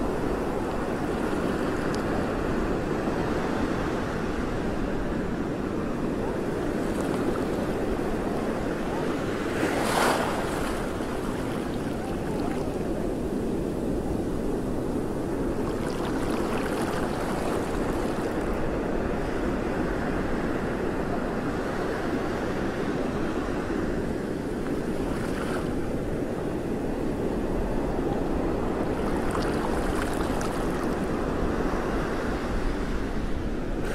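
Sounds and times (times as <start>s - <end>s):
sea waves sloshing: 6.2s - 13.7s, 14.6s - 18.7s, 24.4s - 26.2s, 28.6s - 31.5s
water splash: 15.7s - 18.4s.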